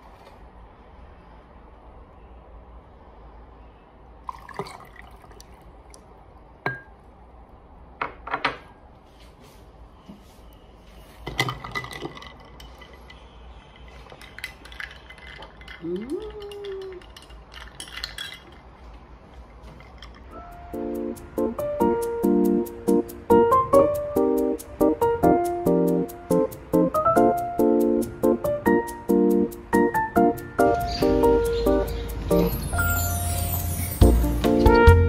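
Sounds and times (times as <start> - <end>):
ice and metal clinking on glass: 4.3 - 5.5, 11.2 - 18.8
drink pouring over ice: 4.3 - 6.0, 13.8 - 18.5
music: 20.4 - 35.0.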